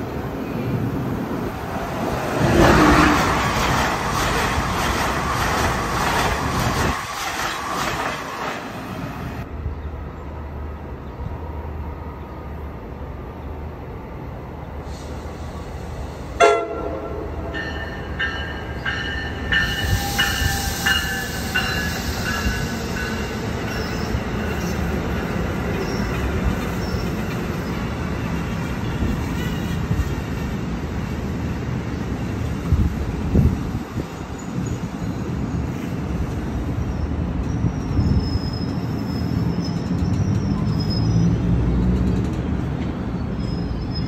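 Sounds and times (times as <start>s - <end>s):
train passing at speed: 0.0s - 44.0s
train horn blast: 16.4s - 17.6s
train bell ringing: 17.3s - 24.6s.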